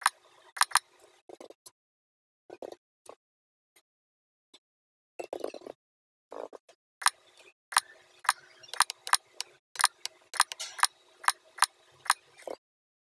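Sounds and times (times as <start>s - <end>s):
mouse clicking: 0.6s - 0.8s, 7.0s - 12.2s.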